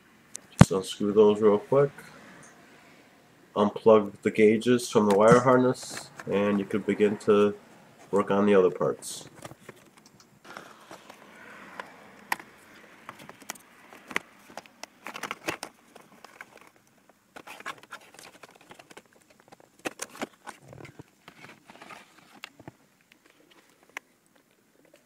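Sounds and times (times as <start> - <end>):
plastic clicks and rattles: 11.8 - 24.5.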